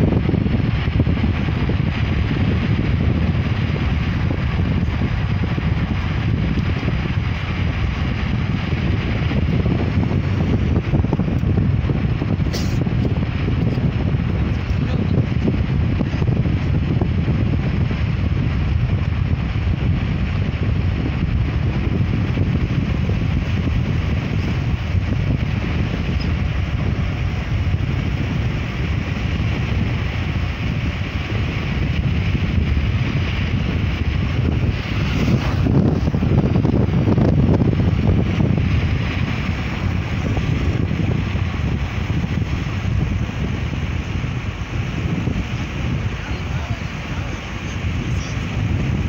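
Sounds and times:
car road noise rumble: 0.0 - 49.0
wind buffeting microphone: 0.0 - 49.0.

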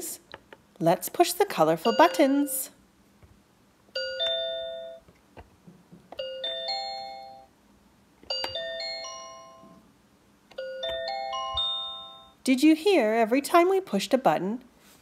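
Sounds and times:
electronic bell chimes: 1.8 - 2.7, 4.0 - 5.0, 6.2 - 7.5, 8.3 - 9.8, 10.6 - 12.4.

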